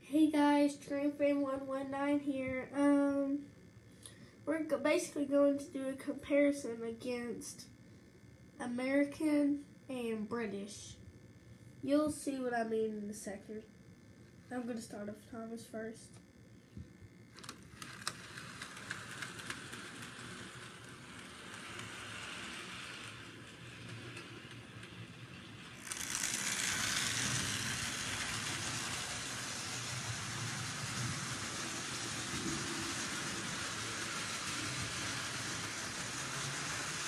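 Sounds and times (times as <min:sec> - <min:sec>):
model train motor whirring: 0:17.3 - 0:37.0
model train click: 0:17.4 - 0:23.2.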